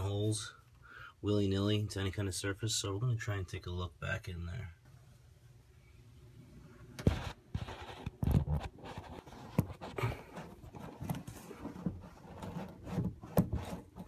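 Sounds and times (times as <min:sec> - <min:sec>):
phone rubbing and scraping: 0:07.0 - 0:14.0.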